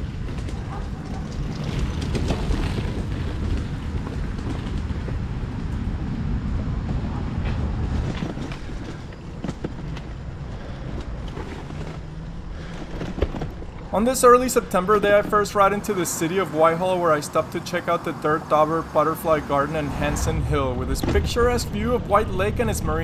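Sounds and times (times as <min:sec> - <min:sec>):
wind buffeting microphone: 0:00.0 - 0:16.4, 0:19.8 - 0:23.0.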